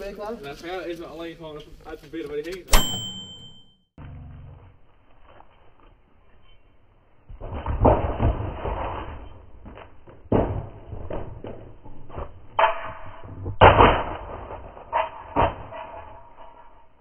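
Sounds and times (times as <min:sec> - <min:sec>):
sharp knocks and clatters: 0:07.3 - 0:17.0.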